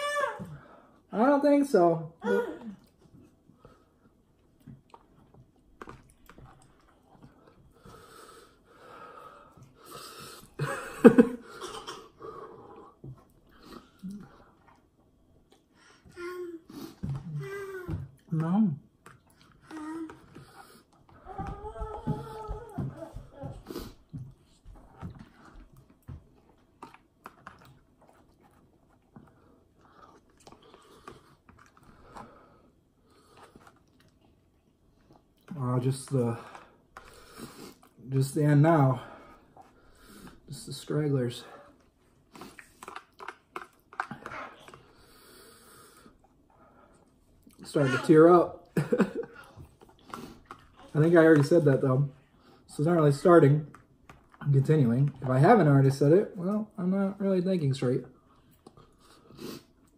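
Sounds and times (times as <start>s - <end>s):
person chewing noodles: 2.8s - 10.6s, 12.4s - 16.1s, 18.9s - 35.5s, 41.7s - 47.6s, 48.8s - 51.4s.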